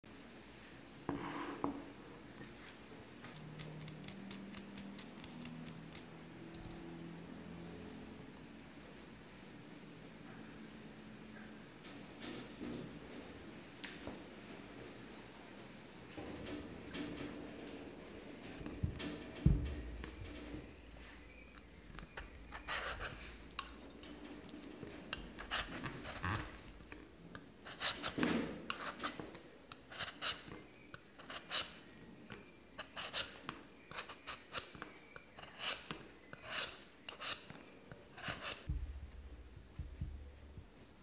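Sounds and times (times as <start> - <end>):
peeler scraping potato skin: 3.3 - 6.1, 27.7 - 29.1, 29.7 - 30.5, 31.2 - 31.8, 32.8 - 38.7.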